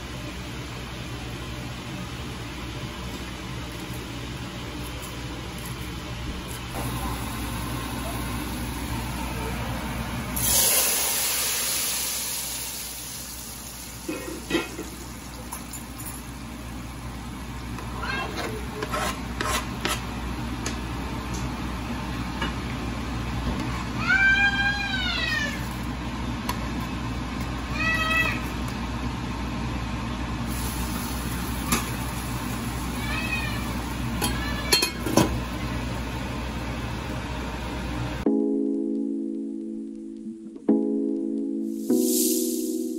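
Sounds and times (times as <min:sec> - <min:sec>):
hot oil sizzling in pot: 0:06.8 - 0:16.4, 0:30.5 - 0:36.1
cat meowing: 0:24.0 - 0:25.6, 0:27.7 - 0:28.4, 0:32.9 - 0:34.8.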